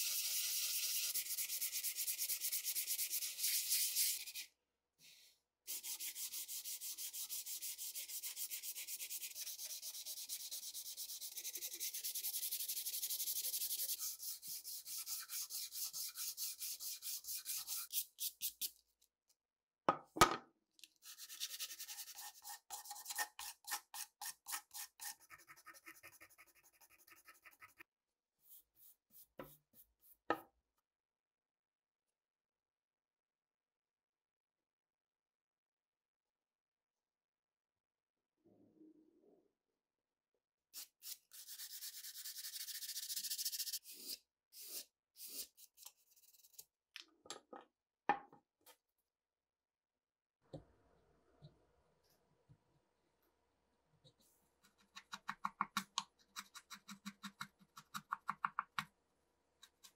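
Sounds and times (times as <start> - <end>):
sandpaper rubbing on wood: 5.7 - 18.7, 40.8 - 45.7.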